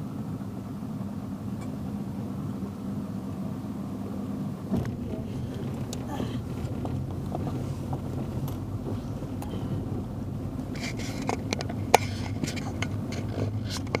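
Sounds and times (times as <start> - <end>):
motorboat engine droning: 0.0 - 14.0
sharp clicks and knocks: 4.7 - 9.5, 10.7 - 14.0.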